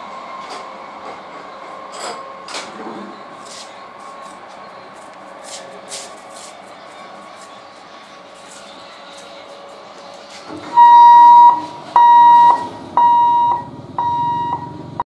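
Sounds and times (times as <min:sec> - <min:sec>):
level crossing alarm beeping: 0:10.5 - 0:15.0.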